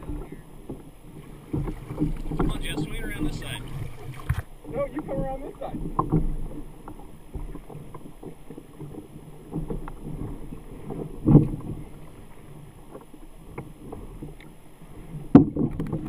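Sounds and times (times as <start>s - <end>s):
water sloshing against kayak hull: 0.0s - 16.0s
knocks on boat: 1.4s - 11.9s, 15.3s - 16.0s.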